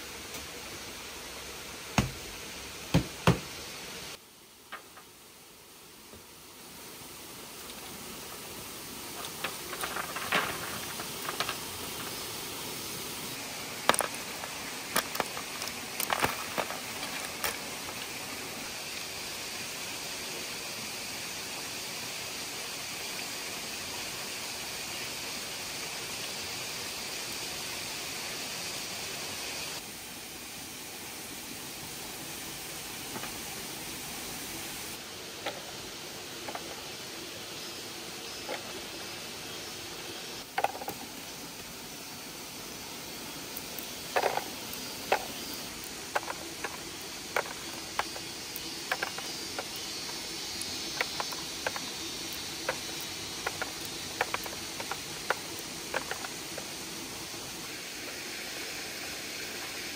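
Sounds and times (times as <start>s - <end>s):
steady background hiss: 0.0s - 59.9s
fruits rustling and knocking: 9.1s - 12.3s, 13.7s - 18.4s, 44.1s - 56.7s.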